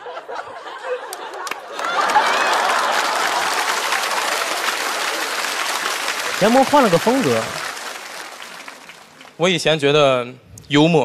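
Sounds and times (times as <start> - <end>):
audience laughing: 0.0 - 9.3
loud applause: 1.0 - 9.6.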